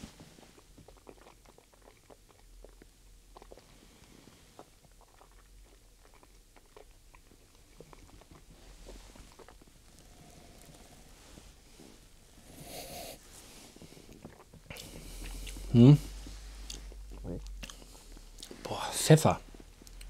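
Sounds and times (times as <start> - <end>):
lip smacks and tongue clicks: 0.6 - 3.7, 4.6 - 9.8, 14.1 - 18.7, 19.5 - 20.0
soft breath: 10.1 - 14.2.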